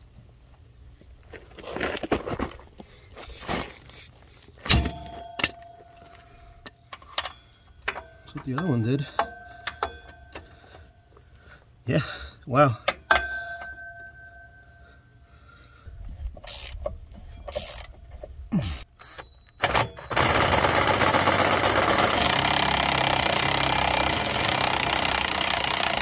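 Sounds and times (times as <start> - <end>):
metal clinks and knocks: 4.7 - 11.0, 12.9 - 15.1.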